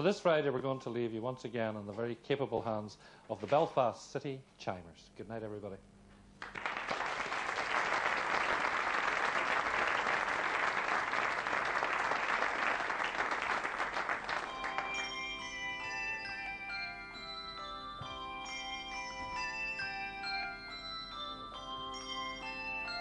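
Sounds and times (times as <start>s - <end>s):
audience applause: 6.4s - 15.2s
handchimes ringing: 14.4s - 23.0s.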